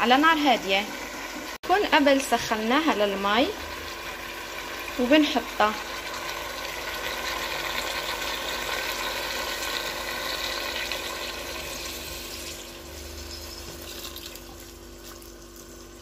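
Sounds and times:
water pouring into a pot: 3.5 - 16.0.

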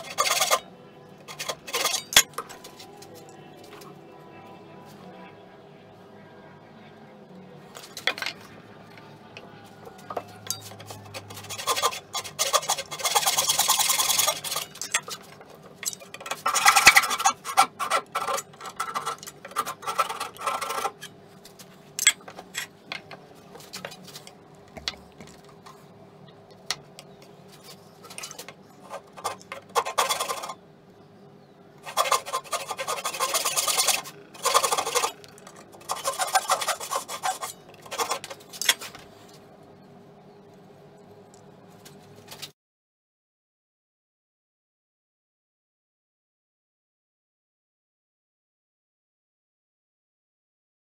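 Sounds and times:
saw rasping through wood: 0.0 - 0.7, 1.3 - 2.2, 10.2 - 21.1, 27.6 - 30.6, 31.8 - 38.8.

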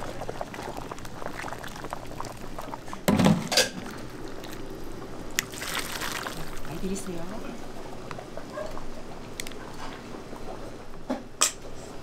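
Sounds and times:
ladle scooping soup: 0.0 - 6.7
liquid splashing into bowl: 5.3 - 6.8.

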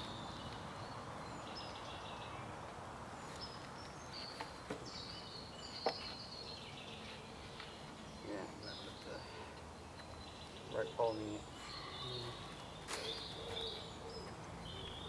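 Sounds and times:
birds chirping and whistling: 3.2 - 15.0.

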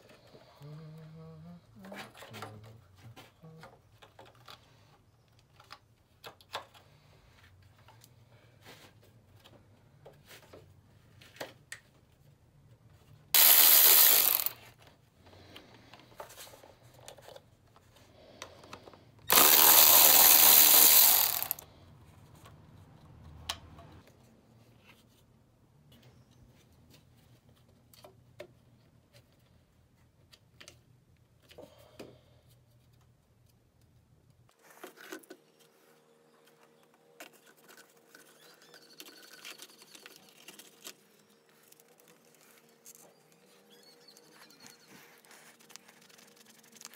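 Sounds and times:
power ratchet whirring: 13.4 - 14.6, 19.3 - 21.6.

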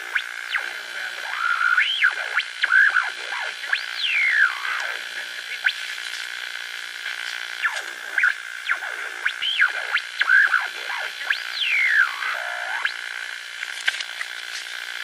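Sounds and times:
eerie whistling electronic tones: 0.1 - 5.0, 7.6 - 13.0.

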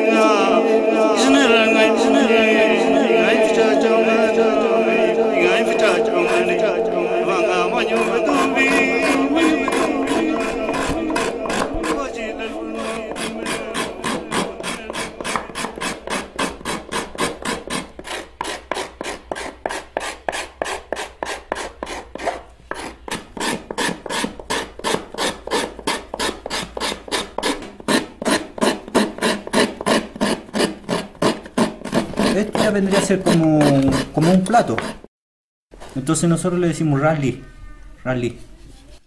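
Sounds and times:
steel scraper rasping on wood: 7.8 - 35.1.

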